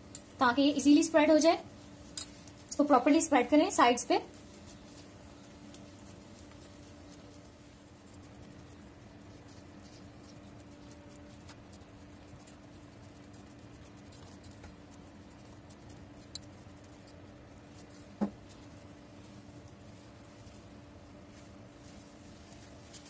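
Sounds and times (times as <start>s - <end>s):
faint steady hum: 0.0s - 23.0s
hands patting dough: 0.0s - 23.0s
small ticks: 0.1s - 0.4s, 1.7s - 2.9s, 4.3s - 20.5s.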